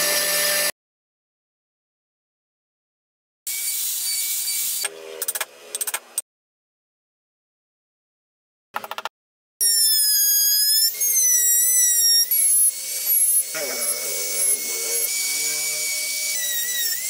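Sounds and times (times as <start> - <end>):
rotary tool whining into wood: 9.6 - 17.0.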